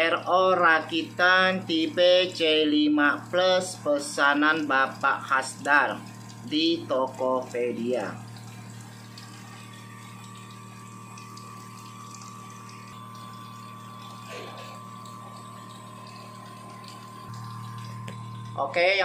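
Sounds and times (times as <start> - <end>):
water pump humming: 0.0 - 19.0
faint high whine: 9.0 - 19.0.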